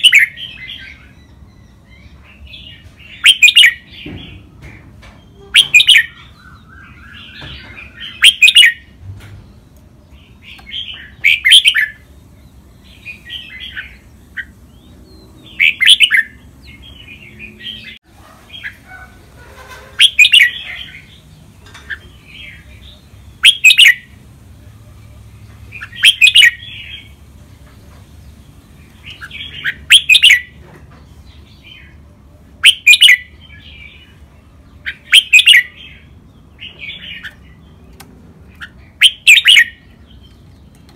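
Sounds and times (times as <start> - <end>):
bird singing loud phrases: 0.0 - 19.2, 20.0 - 40.9
soft bird chattering: 5.3 - 8.9, 10.3 - 12.0, 12.9 - 17.1, 17.7 - 30.6, 31.6 - 34.2, 34.8 - 40.9.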